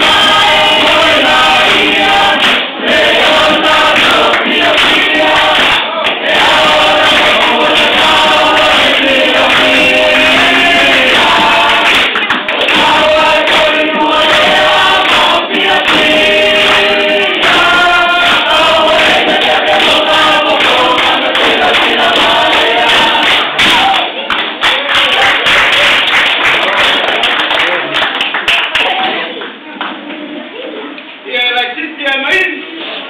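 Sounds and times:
choir singing in harmony: 0:00.0 - 0:23.6.

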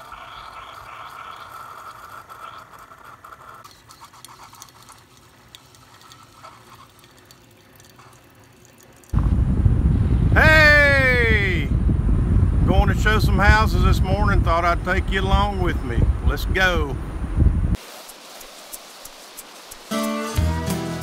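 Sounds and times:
coffee machine running: 0:00.0 - 0:09.2
coffee pouring into mug: 0:00.0 - 0:09.2.

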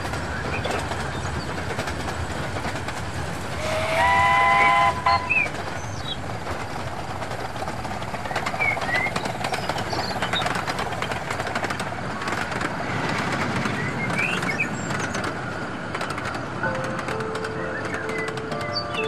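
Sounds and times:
train wheels clicking on track: 0:00.0 - 0:19.0
bird chirps: 0:05.0 - 0:06.2.

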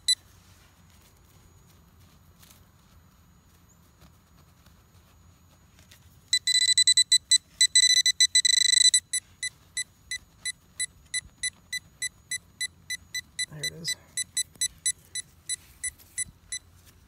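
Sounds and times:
metal detector beeping: 0:00.0 - 0:00.2, 0:06.3 - 0:16.9.

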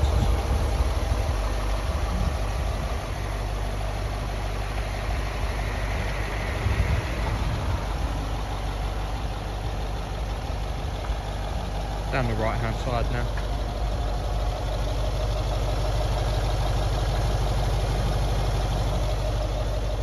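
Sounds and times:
diesel engine idling: 0:00.0 - 0:20.0.

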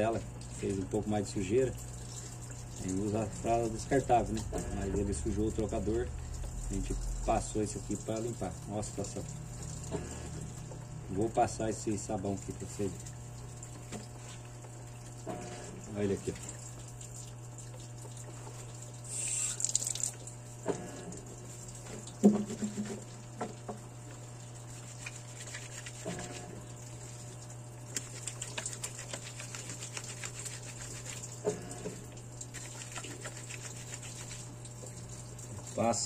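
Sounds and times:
water trickling from tap: 0:00.0 - 0:36.0
knocks against sink: 0:22.2 - 0:23.8
soap rubbed into wet cloth: 0:24.6 - 0:26.6, 0:27.9 - 0:31.4, 0:32.5 - 0:34.6
quick scratchy rubbing: 0:24.7 - 0:26.5, 0:28.0 - 0:31.2, 0:32.6 - 0:34.5.

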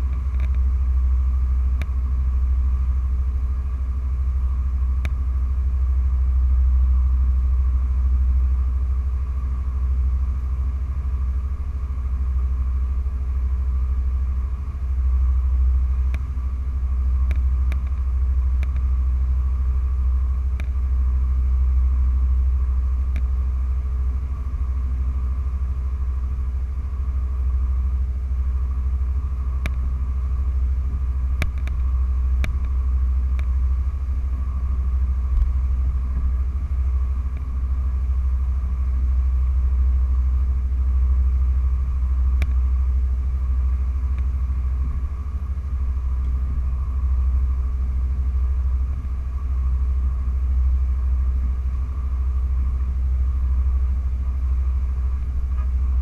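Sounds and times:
faint ticks: 0:00.0 - 0:00.6, 0:01.8 - 0:02.0, 0:05.0 - 0:05.2, 0:16.1 - 0:16.3, 0:17.2 - 0:18.9, 0:20.6 - 0:20.8, 0:23.1 - 0:23.3, 0:29.6 - 0:29.8, 0:31.4 - 0:33.6, 0:42.4 - 0:42.6, 0:44.1 - 0:44.3
boat engine rumble: 0:00.0 - 0:56.0.

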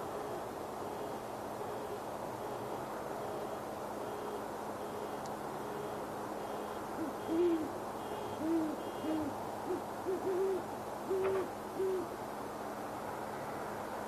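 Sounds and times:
steady background hiss: 0:00.0 - 0:14.0
owl hooting: 0:07.0 - 0:12.2.

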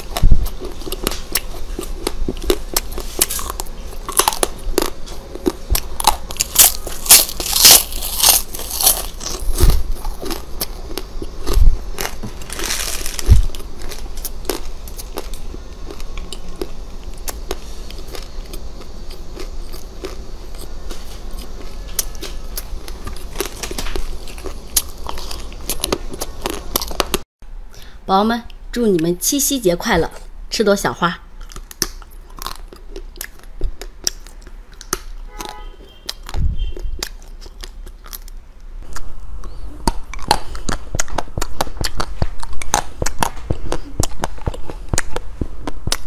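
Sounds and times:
crunchy chewing: 0:00.0 - 0:27.2, 0:31.3 - 0:46.0
low thumps: 0:11.5 - 0:14.0.

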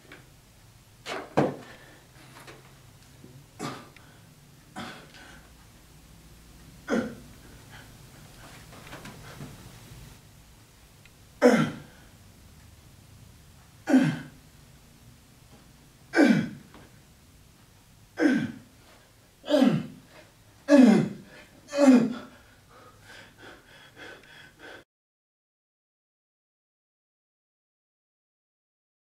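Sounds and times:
faint breathing: 0:01.6 - 0:02.5, 0:21.2 - 0:24.8
man giving exertion cries: 0:06.8 - 0:07.3, 0:11.4 - 0:12.0, 0:13.8 - 0:14.3, 0:16.1 - 0:16.6, 0:18.2 - 0:18.7, 0:19.4 - 0:20.0, 0:20.7 - 0:22.4.

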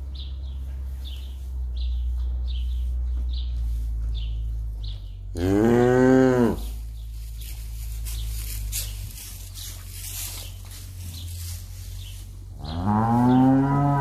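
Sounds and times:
straw rustling: 0:00.0 - 0:13.8
steady low hum: 0:00.0 - 0:14.0
cow mooing: 0:05.3 - 0:06.8, 0:12.6 - 0:14.0.

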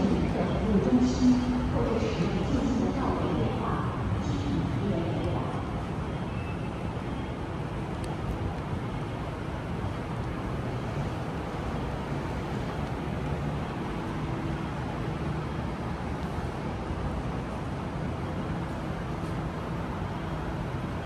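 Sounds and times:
indoor hall rumble and hiss: 0:00.0 - 0:21.0.

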